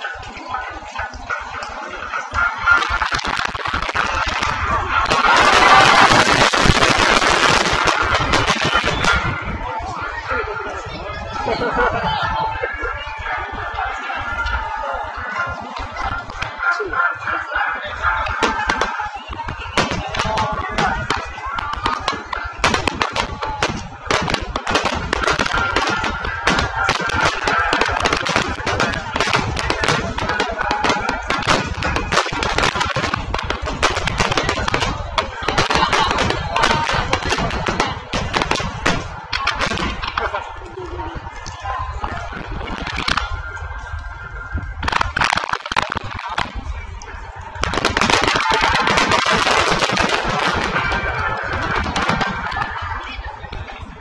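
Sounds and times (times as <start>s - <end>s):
fireworks bangs and crackles: 2.6s - 9.6s, 18.3s - 43.8s, 44.7s - 54.0s.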